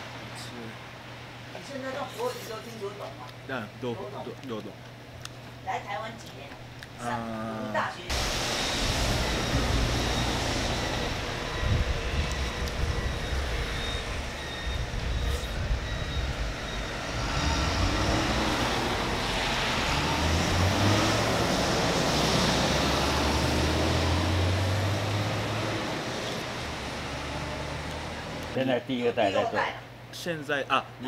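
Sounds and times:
traffic on a wet road: 0:08.1 - 0:28.6.

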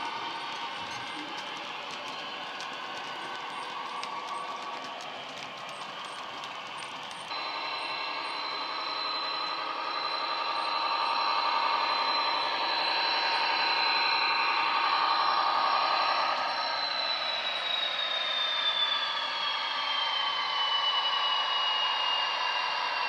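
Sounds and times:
wagon wheels clicking over track: 0:00.0 - 0:07.3
diesel engine running: 0:00.0 - 0:16.8
steady high whistle: 0:00.0 - 0:23.0.

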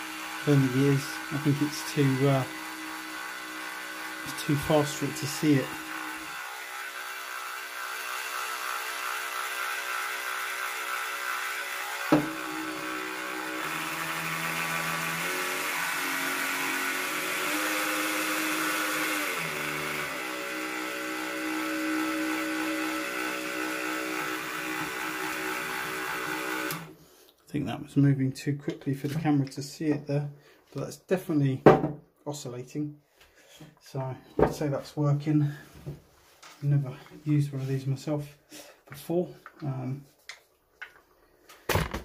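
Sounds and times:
multi-tool motor whirring: 0:00.0 - 0:26.9.

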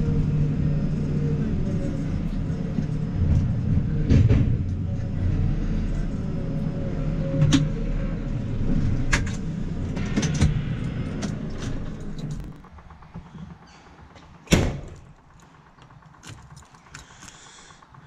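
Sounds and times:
diesel engine running at low revs: 0:00.0 - 0:18.0
sharp clicks and knocks: 0:08.8 - 0:18.0.

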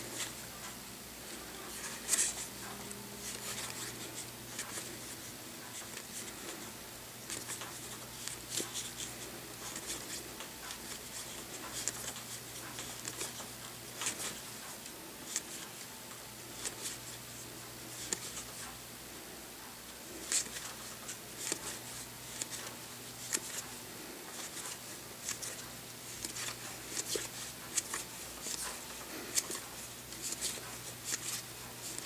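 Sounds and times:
cards sliding papery swish: 0:01.7 - 0:06.7, 0:17.9 - 0:18.7, 0:20.2 - 0:23.7, 0:24.3 - 0:32.0.

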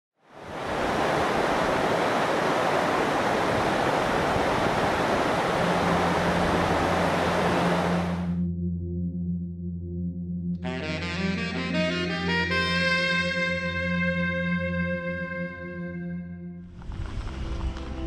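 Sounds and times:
waterfall rushing over rocks: 0:00.4 - 0:08.3
low musical drone: 0:05.5 - 0:16.7.

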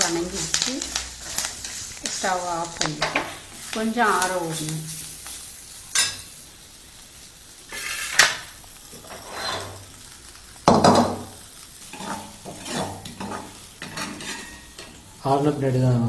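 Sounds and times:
light sizzle: 0:00.0 - 0:16.0
ladle scraping and knocking pan: 0:09.0 - 0:09.8, 0:11.9 - 0:15.0.

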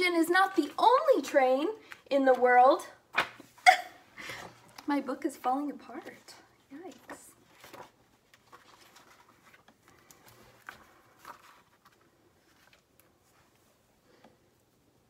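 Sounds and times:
paper pages rustling: 0:05.8 - 0:13.8.

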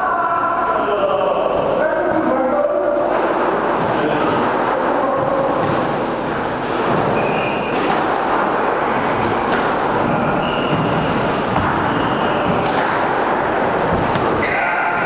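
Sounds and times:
sharp knocks: 0:06.7 - 0:14.4
shoes squeaking on wooden floor: 0:06.8 - 0:08.0, 0:10.0 - 0:12.6.

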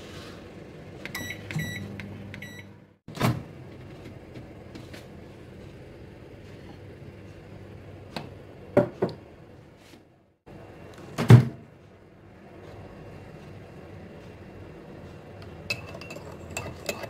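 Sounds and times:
microwave oven humming: 0:00.0 - 0:17.0
microwave oven beeping: 0:01.0 - 0:03.4.

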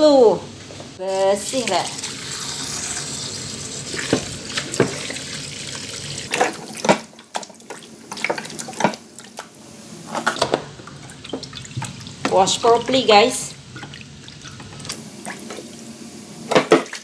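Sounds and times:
tap water running into bowl: 0:01.6 - 0:09.0.

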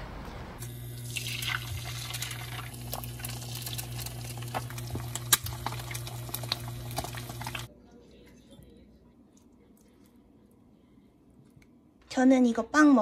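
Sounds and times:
eggs sizzling in oil: 0:00.6 - 0:07.7.

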